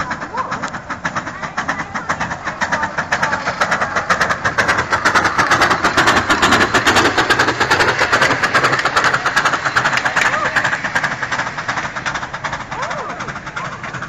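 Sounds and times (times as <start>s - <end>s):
miniature steam locomotive chuffing: 0.0s - 14.0s.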